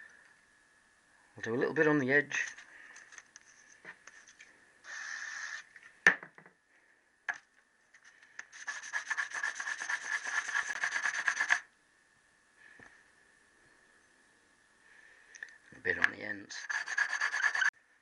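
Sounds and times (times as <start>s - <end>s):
metal scraping on abrasive paper: 8.1s - 11.7s, 16.5s - 17.7s
quick sanding strokes: 8.5s - 11.6s, 16.5s - 17.7s.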